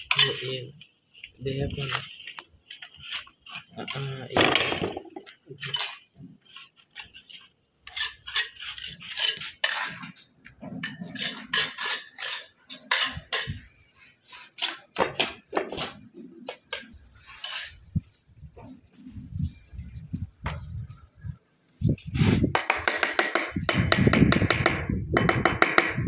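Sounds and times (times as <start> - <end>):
tools scraping mortar on stone: 0.0 - 18.1.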